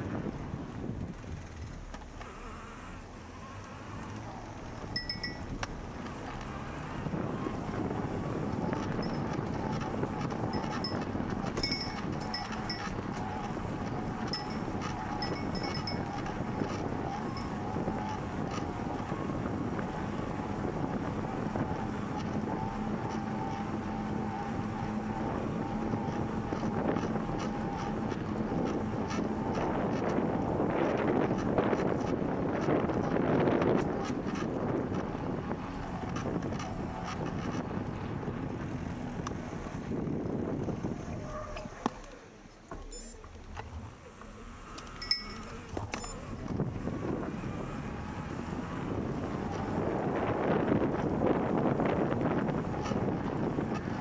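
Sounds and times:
wind on microphone: 0:00.0 - 0:02.6, 0:03.4 - 0:54.0
bicycle tyres rumbling on pavement: 0:00.0 - 0:42.7, 0:43.3 - 0:54.0
short high beeps: 0:42.8 - 0:43.2.

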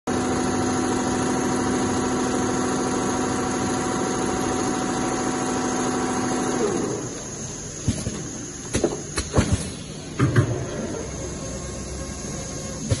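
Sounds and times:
sewing machine hum: 0:00.1 - 0:07.2.

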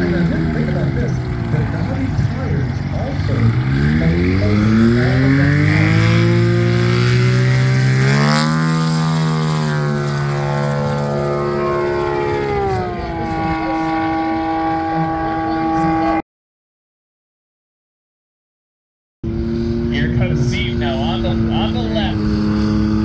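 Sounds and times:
propeller airplane engine: 0:00.0 - 0:16.2, 0:19.2 - 0:23.0.

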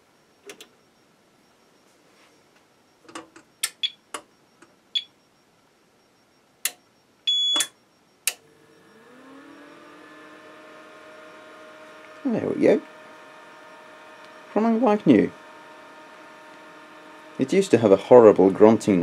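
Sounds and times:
long beep: 0:06.1 - 0:09.9
short high beeps: 0:07.3 - 0:07.8
fan spinning up into a hum: 0:08.3 - 0:19.0.

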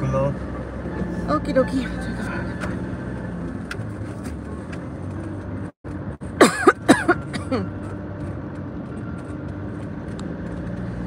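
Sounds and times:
person coughing: 0:06.4 - 0:07.7.

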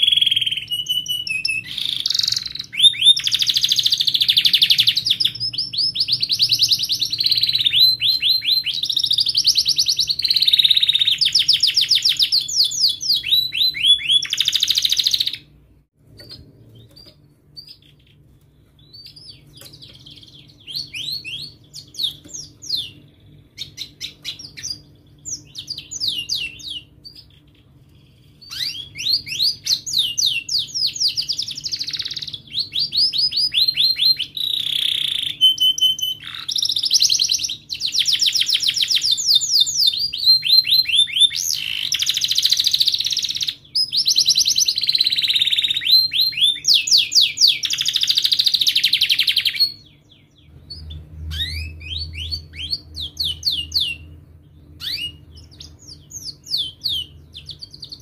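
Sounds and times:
canary singing: 0:00.0 - 0:58.0.

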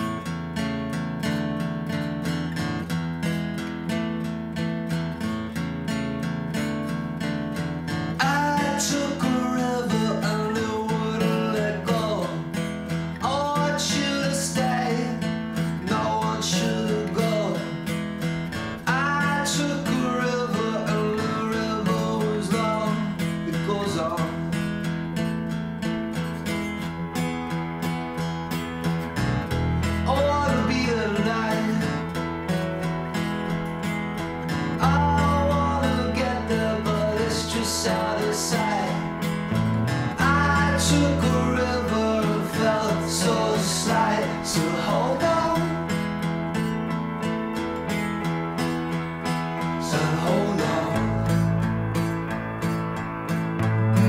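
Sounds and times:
strummed acoustic guitar: 0:00.0 - 0:54.0
lead melody with bending notes: 0:25.6 - 0:54.0.

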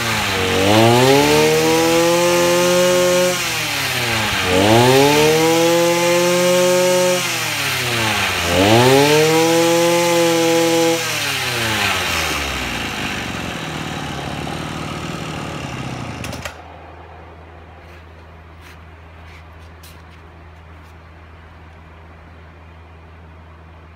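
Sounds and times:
brush cutter engine revving: 0:00.0 - 0:18.0
faint low hum: 0:16.4 - 0:23.9.

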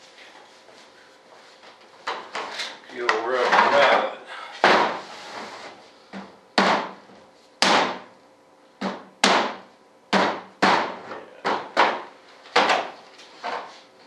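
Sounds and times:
sharp knocks on fiberglass: 0:06.6 - 0:07.0, 0:07.6 - 0:08.1, 0:08.8 - 0:13.0.

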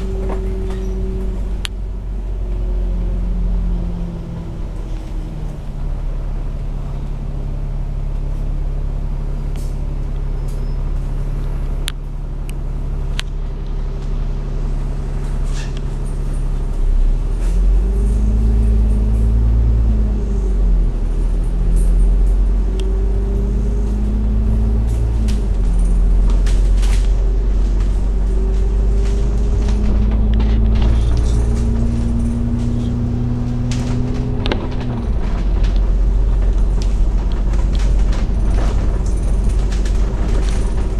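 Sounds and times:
bus diesel engine: 0:00.0 - 0:40.9
clicks and rattles in cabin: 0:24.9 - 0:40.9.

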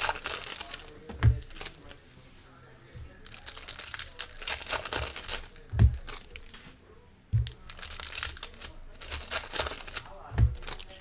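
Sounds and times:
foil wrappers crinkling and tearing: 0:00.0 - 0:02.0, 0:03.1 - 0:06.7, 0:07.4 - 0:11.0
dull thump: 0:05.7 - 0:06.2, 0:10.3 - 0:10.8.

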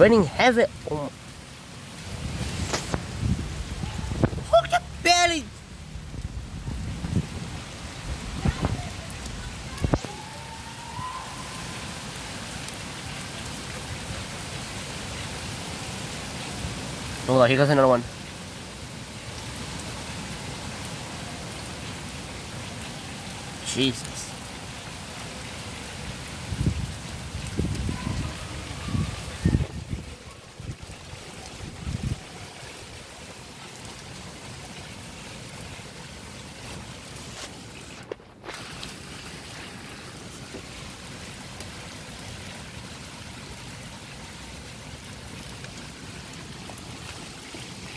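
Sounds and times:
heavy rain: 0:00.0 - 0:47.9
low rumble: 0:03.1 - 0:09.4.

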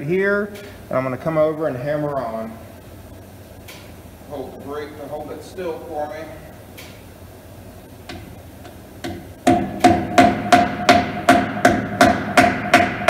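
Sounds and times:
hammer tapping wheel weight: 0:08.0 - 0:13.0.

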